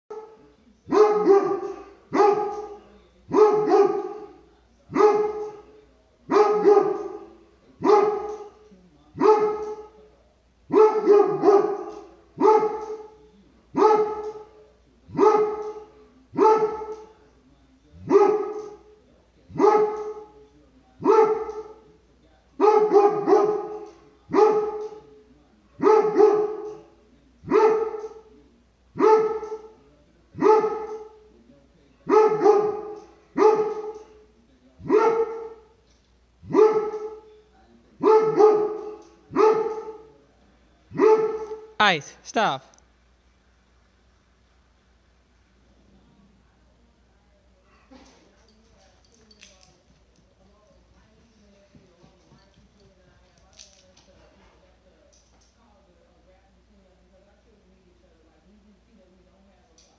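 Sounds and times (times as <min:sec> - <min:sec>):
dog barking: 0:00.1 - 0:05.7, 0:06.3 - 0:08.6, 0:09.2 - 0:10.0, 0:10.7 - 0:17.1, 0:18.0 - 0:18.9, 0:19.5 - 0:20.4, 0:21.0 - 0:21.9, 0:22.6 - 0:25.1, 0:25.8 - 0:28.3, 0:29.0 - 0:29.8, 0:30.4 - 0:31.3, 0:32.0 - 0:34.2, 0:34.8 - 0:35.8, 0:36.4 - 0:37.3, 0:38.0 - 0:40.1, 0:40.9 - 0:41.7.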